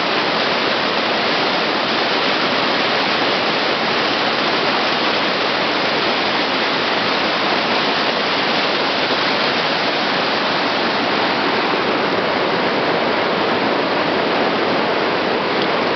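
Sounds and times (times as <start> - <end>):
stream rushing over rocks: 0.0 - 15.9.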